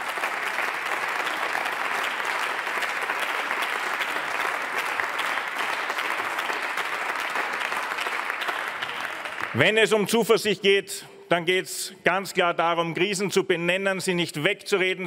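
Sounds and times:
many hands clapping: 0.0 - 10.1.

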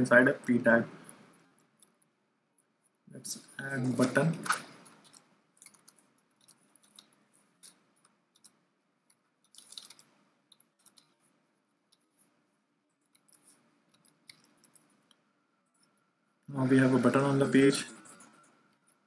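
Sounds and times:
computer mouse clicks: 4.3 - 11.3, 13.0 - 15.2.

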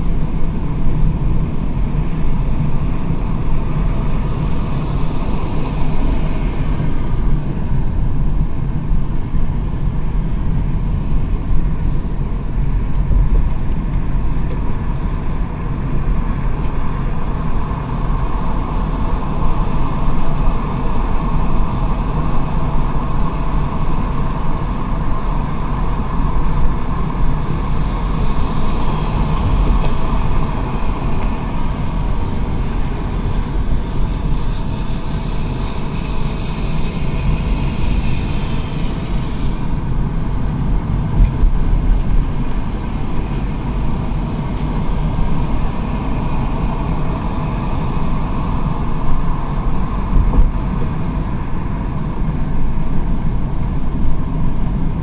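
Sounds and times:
engine and tyre rumble: 0.0 - 55.0
wet road hiss: 16.5 - 51.9.

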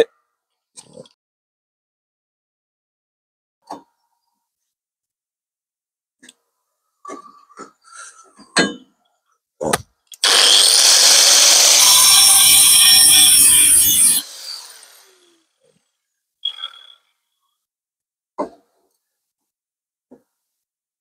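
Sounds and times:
angle grinder cutting steel: 10.2 - 15.6.

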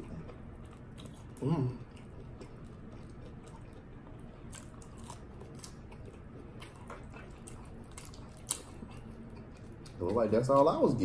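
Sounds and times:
crunching and chewing food: 0.0 - 11.0
room fan humming: 0.0 - 11.0.

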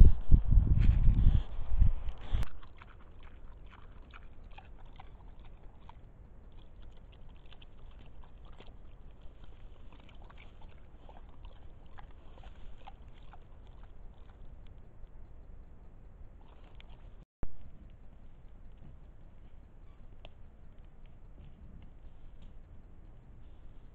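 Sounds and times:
boar crunching and clicking: 2.1 - 15.6, 16.3 - 23.9.

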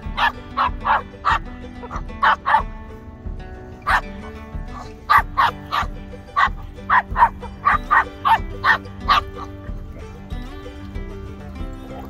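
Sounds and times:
background music with held notes: 0.0 - 12.0
dog barking: 0.1 - 2.7, 3.8 - 4.1, 4.7 - 9.6.

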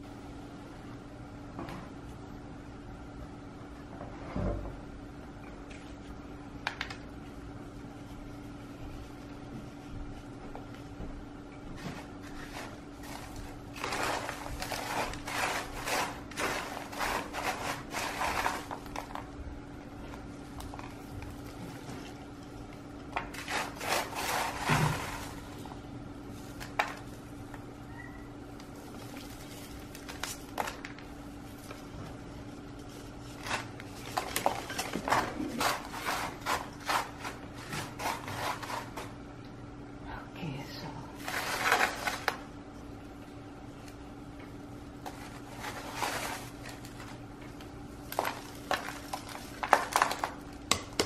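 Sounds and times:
steady low hum: 0.0 - 51.0
bark mix crunching and scraping: 11.8 - 19.4, 23.2 - 32.2, 32.8 - 39.2, 41.2 - 42.5, 45.0 - 50.7.

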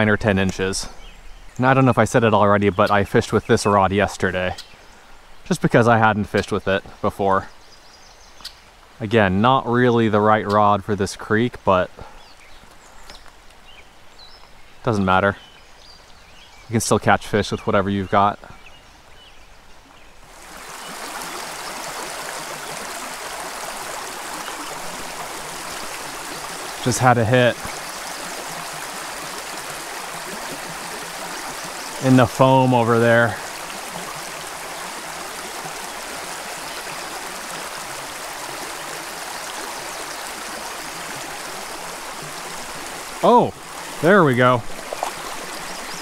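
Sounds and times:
creek water rushing: 0.0 - 15.2, 19.7 - 46.0.

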